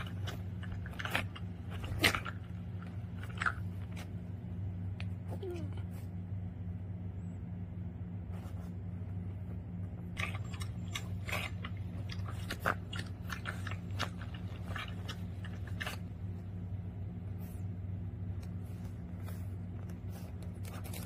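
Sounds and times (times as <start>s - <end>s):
dog chewing and lip-smacking: 0.0s - 5.6s, 10.2s - 16.7s
steady low hum: 0.0s - 21.0s.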